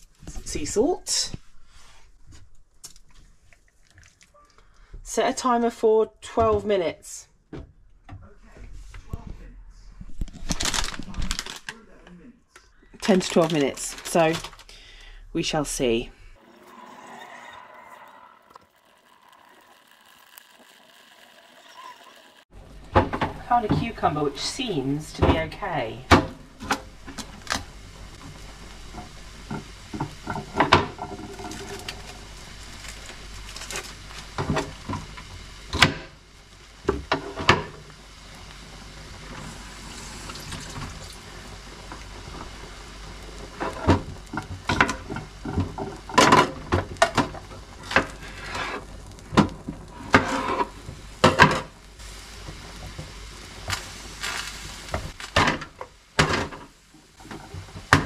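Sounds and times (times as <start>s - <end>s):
pasta boiling in a pan: 16.4s - 58.0s.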